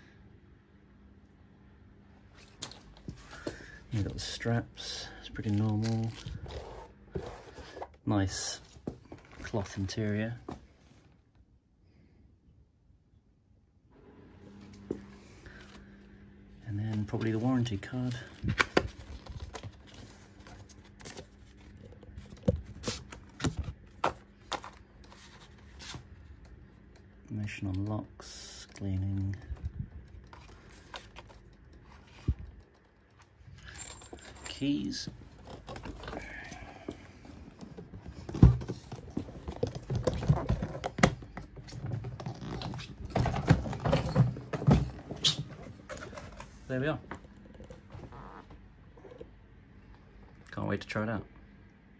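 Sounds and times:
papers rustling: 5.4s - 7.9s, 16.8s - 26.6s, 28.8s - 46.7s.

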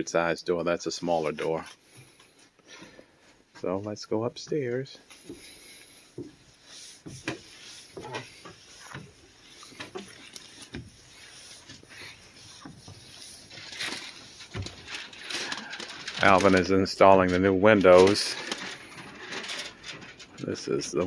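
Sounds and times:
footsteps on wooden stairs: 4.4s - 11.0s.

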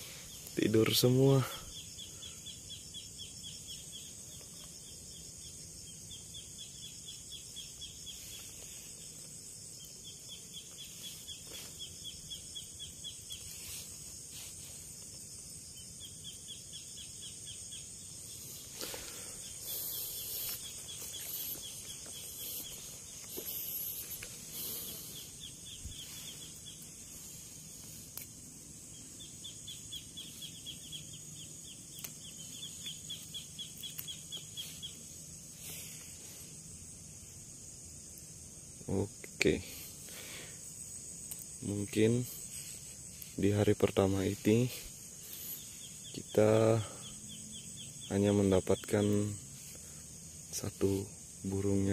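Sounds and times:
high-pitched insect buzz: 0.0s - 51.9s
pulsing insect trills: 0.0s - 51.9s
footsteps on dry leaves: 18.4s - 28.1s.

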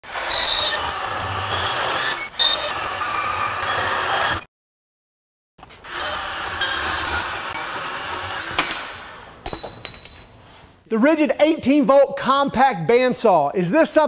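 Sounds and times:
band saw cutting steel: 0.0s - 4.5s, 5.8s - 9.4s.

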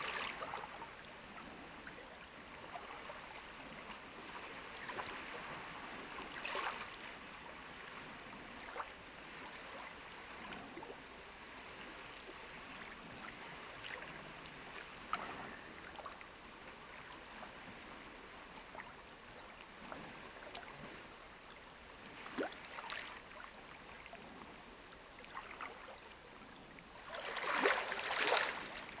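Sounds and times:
waves lapping against rocks: 0.0s - 1.9s, 2.6s - 7.1s, 21.9s - 29.0s.

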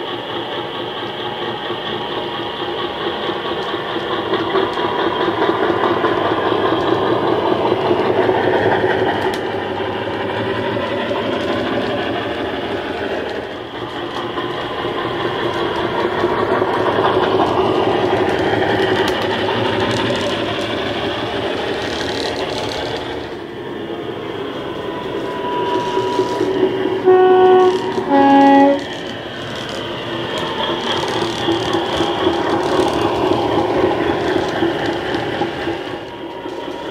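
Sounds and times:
train horn blasts: 27.0s - 28.9s.

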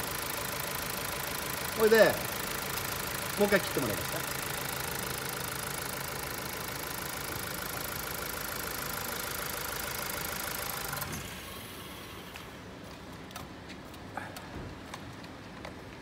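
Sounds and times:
car engine idling: 0.0s - 12.6s.

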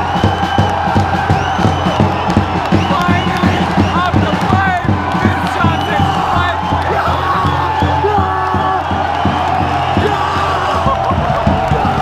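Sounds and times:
crowd cheering and chanting: 0.0s - 12.0s
hand-held drums beating: 0.0s - 12.0s.

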